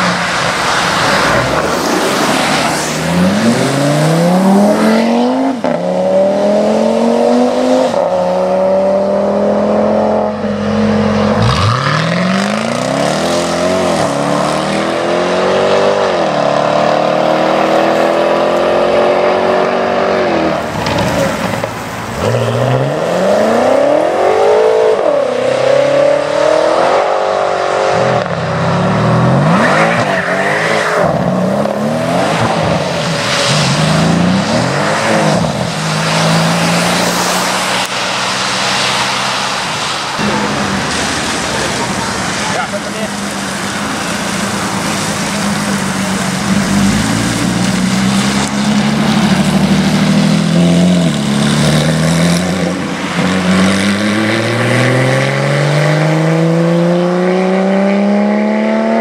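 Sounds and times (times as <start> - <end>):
sports cars accelerating hard: 0.0 - 59.0
tyres hissing through water: 0.2 - 5.5, 31.8 - 55.9.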